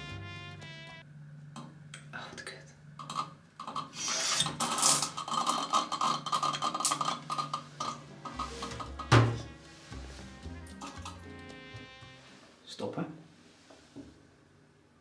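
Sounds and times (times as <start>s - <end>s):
faint background music: 0.0s - 1.3s, 7.3s - 13.3s
loud knock: 9.0s - 9.5s.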